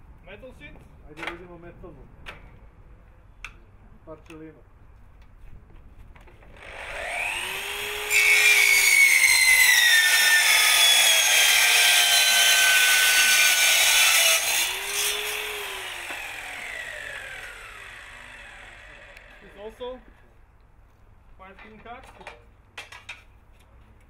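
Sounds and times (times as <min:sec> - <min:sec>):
saw motor whine: 0:06.6 - 0:19.5
saw cutting metal: 0:06.6 - 0:19.6.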